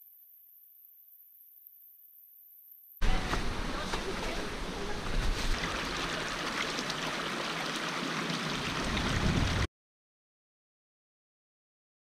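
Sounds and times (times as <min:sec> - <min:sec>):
rushing mountain stream: 0:03.0 - 0:09.7
wind rumble on microphone: 0:08.7 - 0:09.7.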